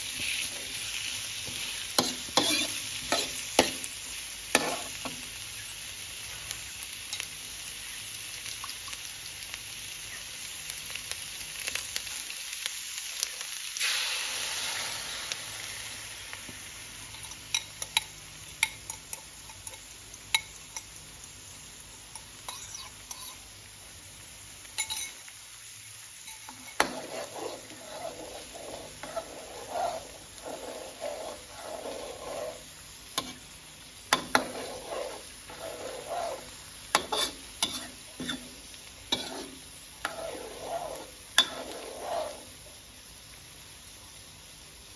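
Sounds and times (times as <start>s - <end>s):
onions sizzling in a wok: 0.0s - 44.9s
sauce hissing in a wok: 0.0s - 44.9s
spatula scraping a pan: 0.1s - 5.2s, 22.5s - 23.4s, 24.8s - 25.2s, 26.2s - 33.5s, 34.1s - 42.7s.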